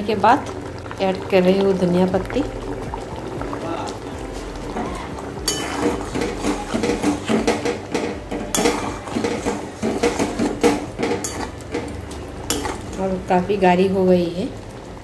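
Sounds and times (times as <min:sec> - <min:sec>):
spatula scraping a steel pan: 0:05.4 - 0:11.6.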